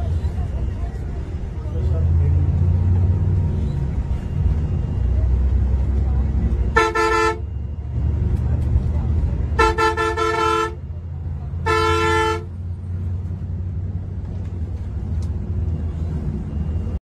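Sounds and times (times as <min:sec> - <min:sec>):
bus engine rumble: 0:00.0 - 0:17.0
bus horn blasts: 0:06.6 - 0:07.7, 0:09.4 - 0:12.7.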